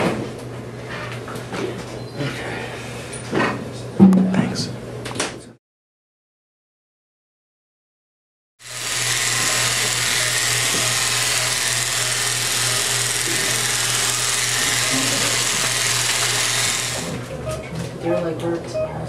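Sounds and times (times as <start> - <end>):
electric clippers buzzing: 8.6 - 17.3.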